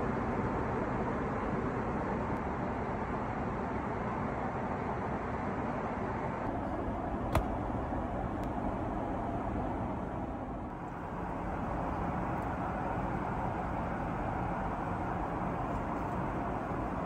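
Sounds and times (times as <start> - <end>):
airplane cabin noise: 6.0 - 17.0.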